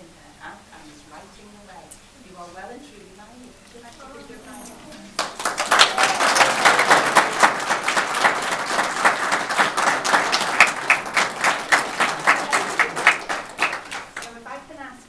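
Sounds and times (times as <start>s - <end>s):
crowd applauding: 5.0s - 14.4s.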